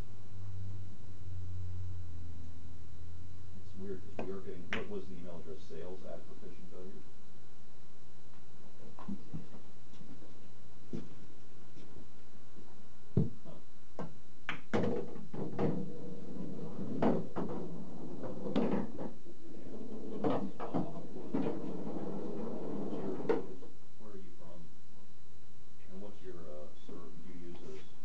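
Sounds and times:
pool balls clacking: 13.2s - 23.6s.

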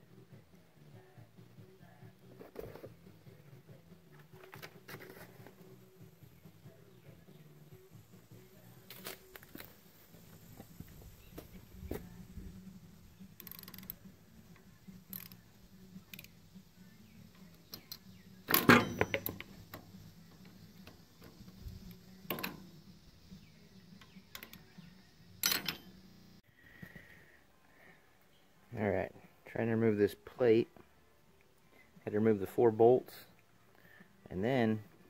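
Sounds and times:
ratchet wrench clicking: 13.4s - 14.1s, 15.0s - 15.4s, 16.0s - 16.4s, 24.0s - 24.7s
tools clanking against metal: 17.7s - 21.4s, 22.3s - 22.7s, 25.4s - 26.0s.

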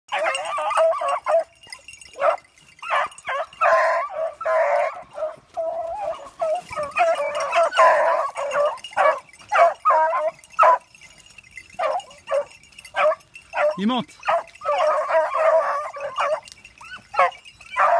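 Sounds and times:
hounds baying and yelping: 0.1s - 17.9s.

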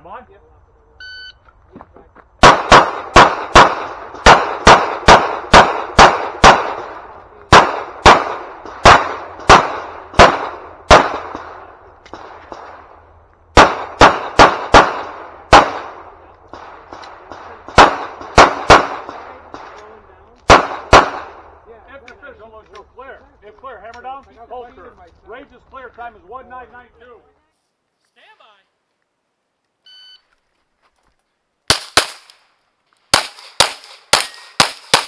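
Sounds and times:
pistol shots with echo: 2.4s - 19.8s, 20.4s - 21.5s, 31.7s - 32.3s, 33.1s - 35.0s.

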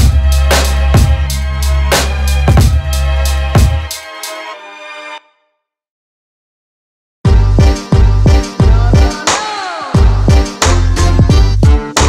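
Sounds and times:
background music: 0.0s - 5.5s, 7.3s - 12.0s.

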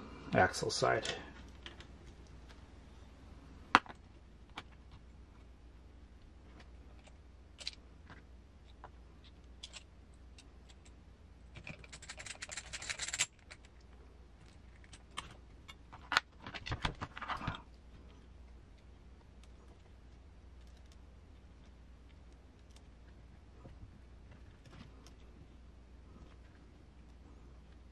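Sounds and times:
light clicks of small parts: 1.0s - 2.6s, 6.2s - 25.3s
dense rattle of small parts: 9.6s - 13.8s.

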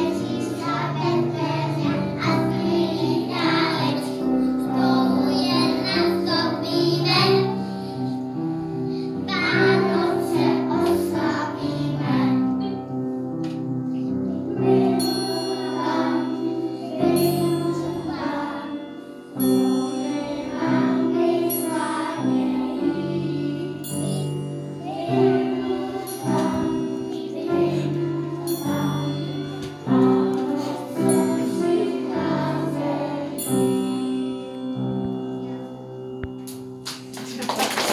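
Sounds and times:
children singing: 0.0s - 8.1s, 9.3s - 12.7s, 14.4s - 19.0s, 20.0s - 24.0s, 24.8s - 33.6s
instrumental accompaniment: 0.0s - 37.9s
bright tinkling: 13.8s - 37.4s.

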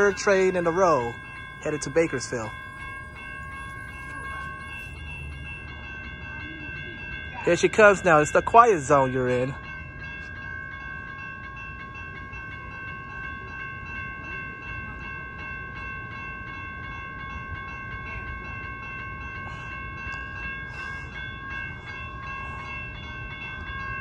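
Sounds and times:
train rumbling: 0.0s - 8.5s
crossing warning bell ringing: 0.0s - 24.0s.

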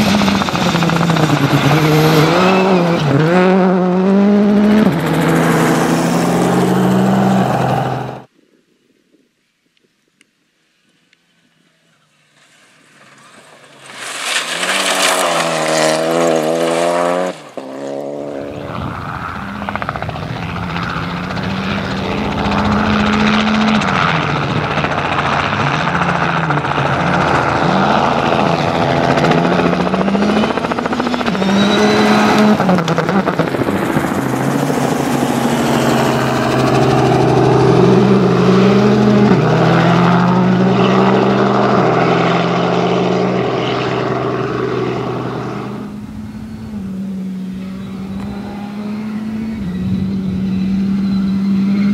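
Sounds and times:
low-flying helicopter drone: 0.0s - 2.6s, 3.4s - 8.3s, 17.3s - 51.9s
rally car engine at full throttle: 0.0s - 8.3s, 12.6s - 51.9s
rally car engine revving: 0.0s - 8.3s, 12.9s - 51.9s.

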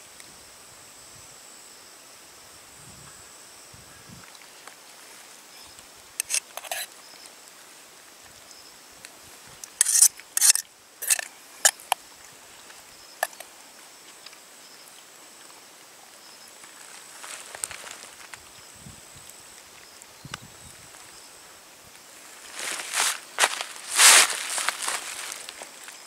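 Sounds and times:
spork scraping metal pot: 6.2s - 6.9s, 9.7s - 12.0s, 13.2s - 13.4s.

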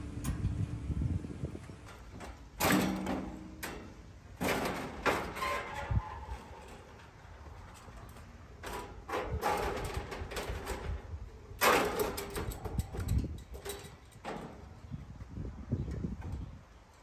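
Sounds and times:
sheet metal scraping and rattling: 1.6s - 15.0s.

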